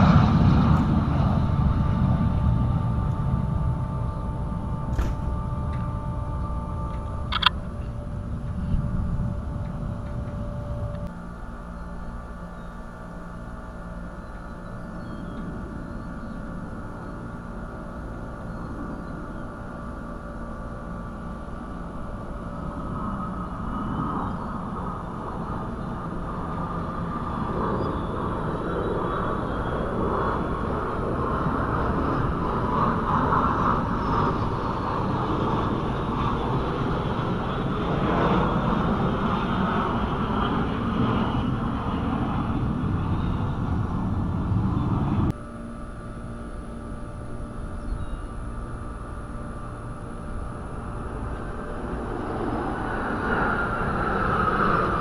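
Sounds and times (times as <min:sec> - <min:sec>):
jet aircraft flying past: 0:00.0 - 0:55.0.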